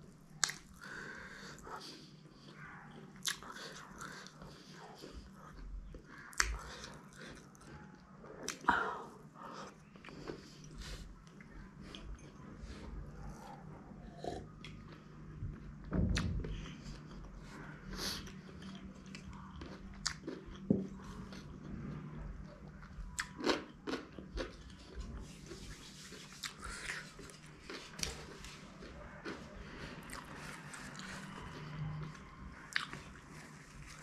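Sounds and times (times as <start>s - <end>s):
person chewing and biting: 0.3s - 1.0s, 3.2s - 5.6s, 18.1s - 21.6s, 22.8s - 34.0s
thump: 15.9s - 16.4s.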